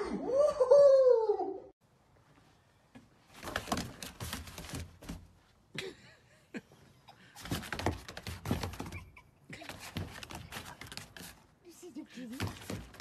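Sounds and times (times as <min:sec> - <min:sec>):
dog paws on wooden deck: 0:02.9 - 0:05.5, 0:07.4 - 0:13.0.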